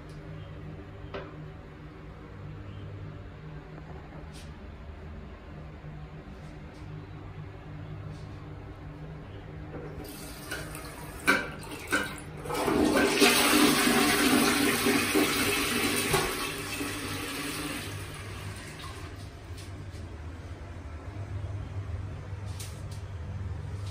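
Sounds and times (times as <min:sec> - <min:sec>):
toilet water rushing: 0:10.0 - 0:19.2.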